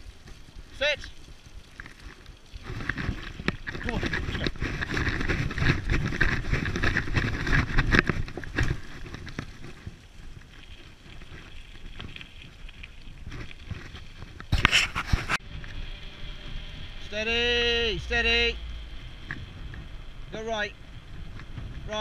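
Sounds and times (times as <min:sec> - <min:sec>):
scooter rattling over dirt track: 0:01.8 - 0:11.4
wind on microphone: 0:02.6 - 0:10.4, 0:19.1 - 0:22.0.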